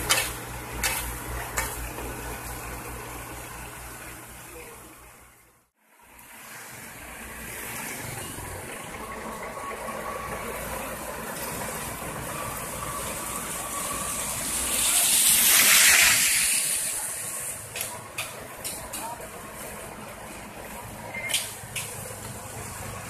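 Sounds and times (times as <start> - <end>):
asphalt paver running: 0.0 - 23.0
car tyres hissing on wet road: 6.0 - 9.4, 10.1 - 18.5.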